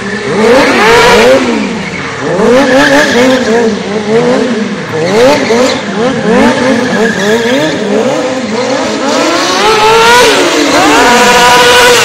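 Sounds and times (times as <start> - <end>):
motorcycle engine revving: 0.0 - 12.0
tyre squeal: 4.9 - 8.8.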